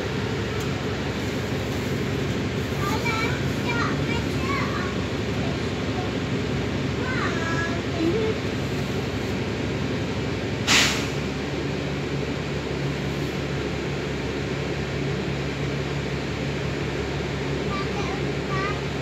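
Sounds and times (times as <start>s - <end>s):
bus engine humming: 0.0s - 19.0s
air hiss: 10.7s - 11.3s.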